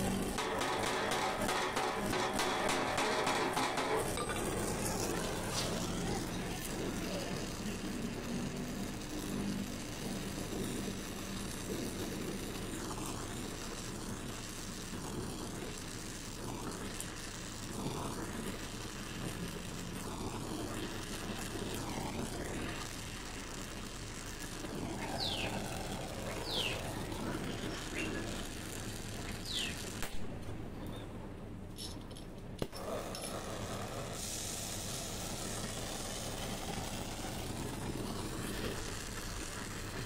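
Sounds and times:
torch flame hissing: 0.0 - 31.6, 32.6 - 40.0.

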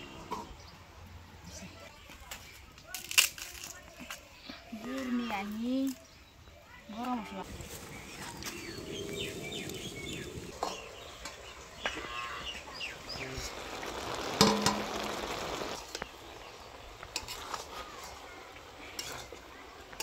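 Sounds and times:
birds chirping: 3.9 - 20.0
metal spatula scraping wok: 17.1 - 19.4.

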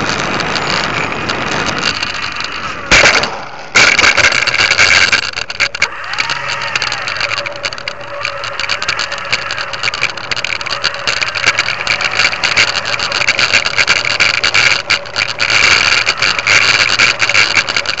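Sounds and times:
constant rattling: 0.0 - 18.0
model airplane motor and propeller: 0.0 - 18.0.

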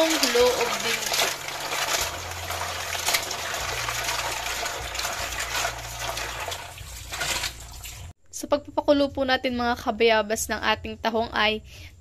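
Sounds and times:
hands rubbing shells in water: 0.0 - 8.1
tap water running into basin: 0.0 - 8.1
water splashes: 0.0 - 8.1.

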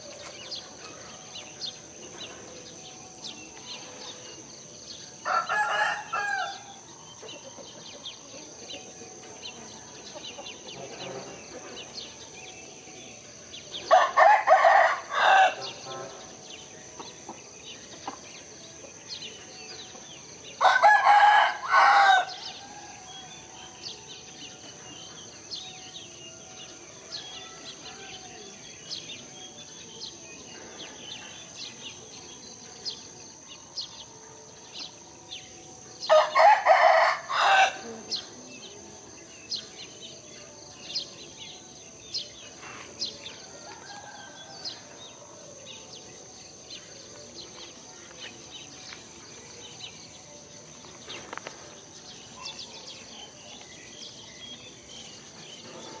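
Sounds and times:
rooster crowing: 5.2 - 6.8, 13.9 - 15.9, 20.6 - 23.5, 36.0 - 38.1, 43.4 - 45.0.

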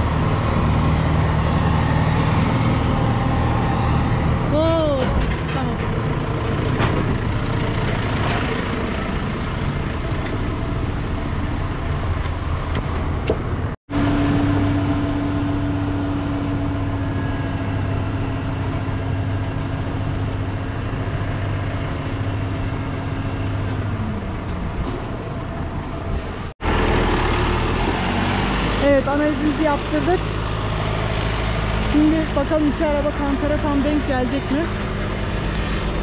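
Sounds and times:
engine idling hum: 0.0 - 28.0
heavy vehicle engines running: 0.0 - 36.0.

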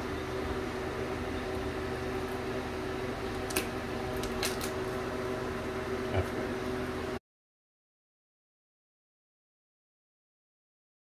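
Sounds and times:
steady mechanical hum: 0.0 - 7.2.

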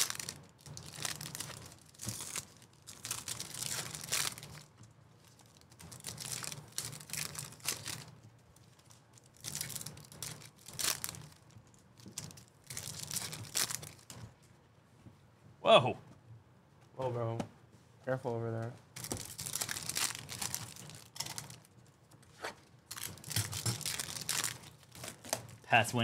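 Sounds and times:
wrappers tearing and crinkling: 0.0 - 14.3, 19.0 - 21.8, 22.6 - 25.7.

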